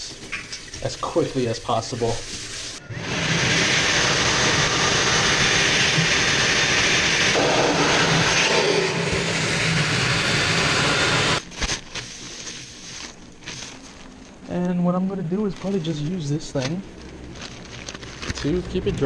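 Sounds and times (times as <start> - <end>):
hand dryer blowing air: 2.8 - 11.4.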